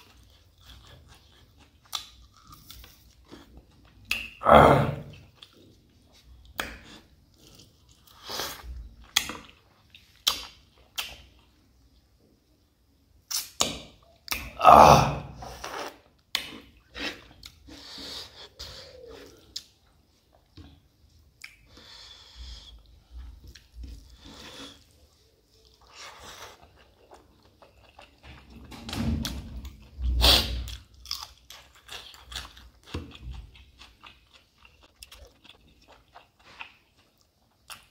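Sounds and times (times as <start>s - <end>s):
person chewing food: 0.0s - 12.0s, 15.4s - 37.9s
wet mouth clicks and smacks: 10.2s - 11.3s.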